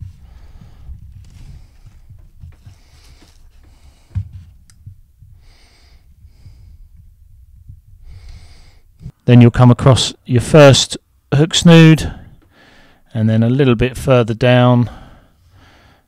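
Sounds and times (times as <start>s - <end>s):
hands handling fishing line: 0.0s - 5.0s
short breaths: 0.1s - 4.5s, 5.3s - 7.0s, 8.0s - 9.1s, 12.0s - 13.1s, 14.9s - 16.0s.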